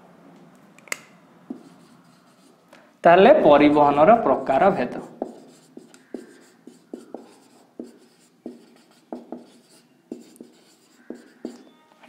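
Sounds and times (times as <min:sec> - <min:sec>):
marker pen writing on board: 0:01.5 - 0:02.6, 0:04.8 - 0:11.8.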